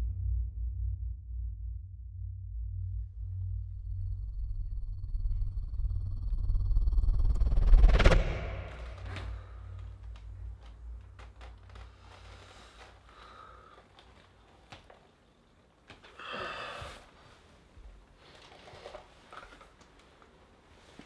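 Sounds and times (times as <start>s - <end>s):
low hum: 0.0s - 13.6s
man breathing quietly: 8.8s - 14.8s, 16.0s - 18.5s
small body movements: 8.9s - 21.0s.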